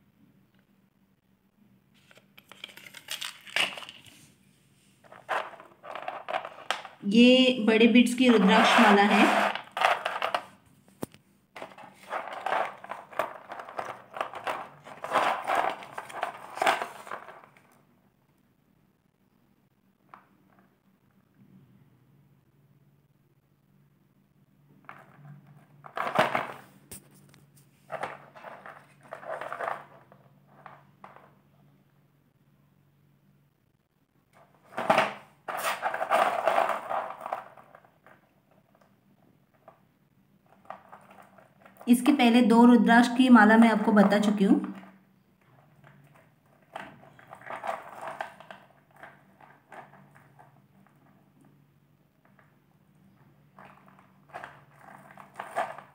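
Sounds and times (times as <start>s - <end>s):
bead necklace rustle: 2.0s - 7.0s, 8.2s - 10.6s, 11.6s - 17.8s, 24.9s - 31.3s, 34.4s - 38.7s, 40.4s - 42.1s, 44.7s - 51.2s, 53.1s - 55.9s
beads clattering and clinking: 2.4s - 4.2s, 5.0s - 7.0s, 8.2s - 10.6s, 11.6s - 17.8s, 27.9s - 31.4s, 34.7s - 38.6s, 44.0s - 51.5s, 53.1s - 55.9s
bead necklace rustling and clicking: 5.0s - 7.0s, 8.2s - 17.8s, 34.7s - 38.3s.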